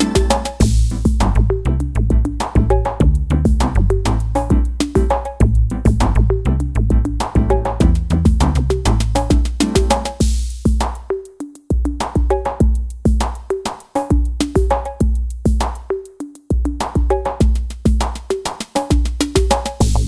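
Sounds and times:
pitched tom-like hits: 0.0 - 3.6
electronic drum loop: 0.0 - 20.0.

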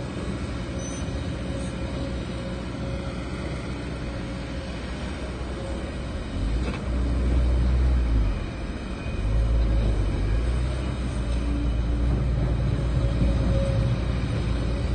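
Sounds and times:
dump truck pulling away: 0.0 - 14.9
excavator diesel engine: 0.0 - 14.9.

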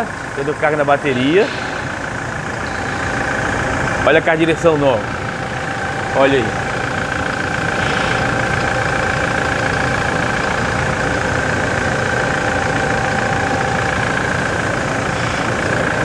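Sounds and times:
steady high tone: 0.0 - 11.2
truck engine idling: 0.0 - 16.0.

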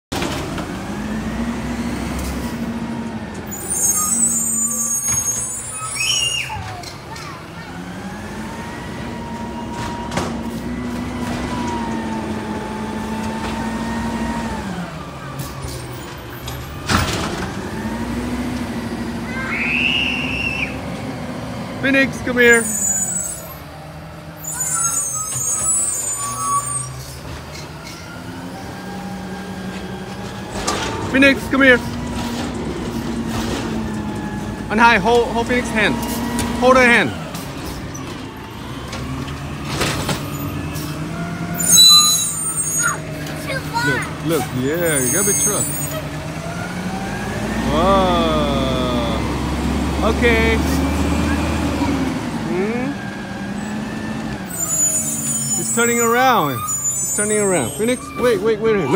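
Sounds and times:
air brakes hissing: 3.5 - 6.7, 54.6 - 58.0
truck engine running: 6.9 - 56.6.

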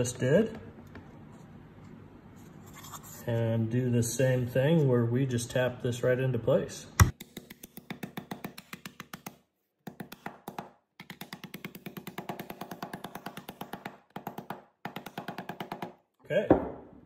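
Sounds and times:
rubber mallet tapping wood: 7.0 - 16.0.

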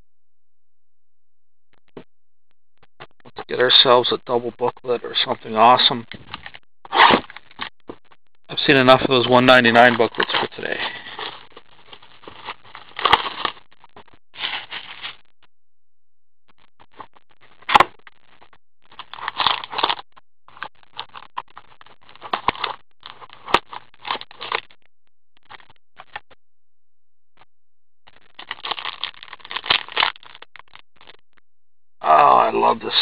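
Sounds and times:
plastic wrapping crinkling: 8.6 - 13.6, 14.4 - 15.2, 18.9 - 21.4, 28.3 - 31.2.

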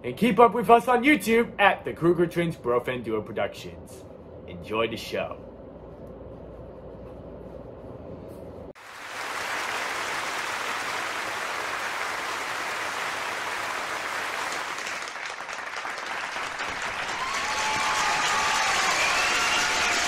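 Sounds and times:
crowd applause: 8.8 - 20.0.

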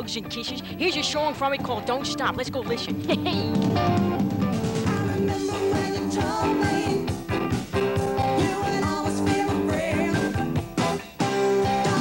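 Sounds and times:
rock band playing: 1.2 - 12.0
steady drum beat: 1.4 - 12.0
person singing: 4.8 - 7.2, 8.1 - 12.0.

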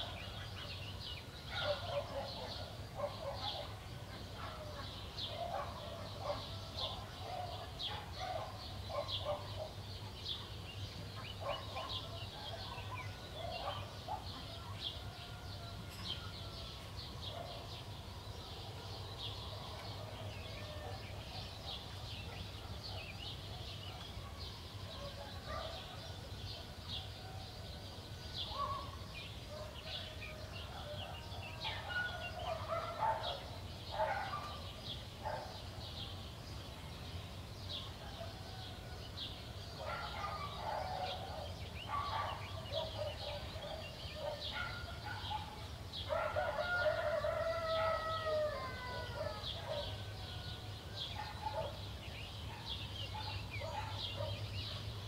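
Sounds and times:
small birds chirping: 0.0 - 55.0
rooster crowing: 46.3 - 50.4.

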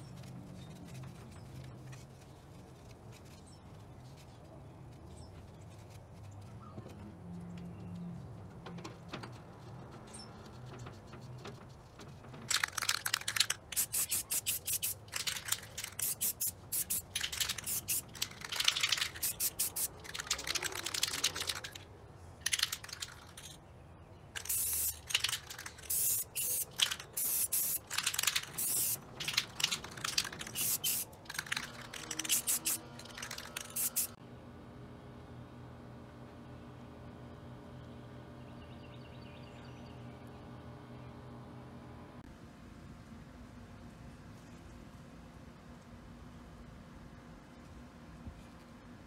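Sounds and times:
aerosol can spraying hissing bursts: 13.8 - 15.0, 15.9 - 18.1, 19.1 - 20.0, 24.4 - 25.1, 25.8 - 27.9, 28.5 - 29.4, 30.4 - 31.1, 32.0 - 32.8, 33.6 - 34.2.

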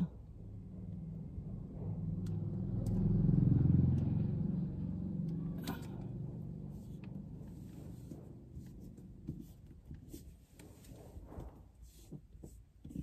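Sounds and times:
vehicle engine rumble passing: 0.0 - 9.3.

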